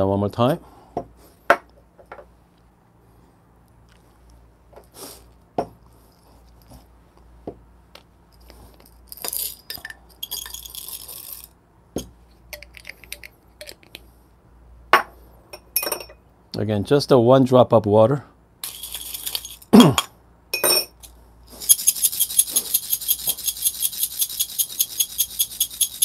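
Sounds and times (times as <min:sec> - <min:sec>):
coffee beans rattling: 0:08.5 - 0:11.6, 0:12.5 - 0:14.0, 0:18.6 - 0:19.7, 0:20.9 - 0:26.0
glass and steel clinking: 0:09.2 - 0:11.5, 0:18.6 - 0:26.0.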